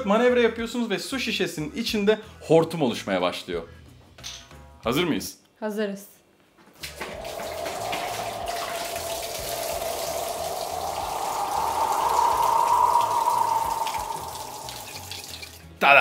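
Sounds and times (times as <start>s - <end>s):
water pouring into sink: 6.8s - 15.7s.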